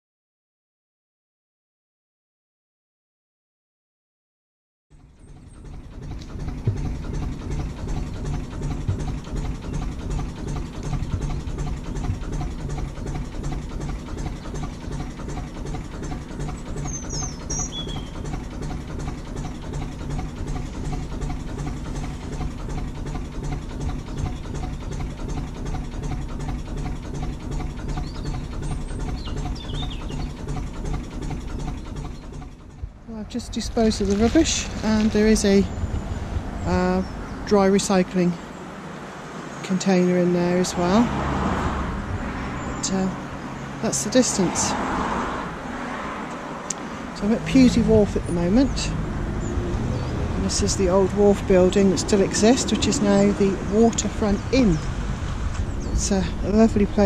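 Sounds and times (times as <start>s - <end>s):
boat engine running: 4.9s - 57.0s
bird chirps: 16.7s - 18.3s, 27.8s - 30.4s, 55.6s - 56.2s.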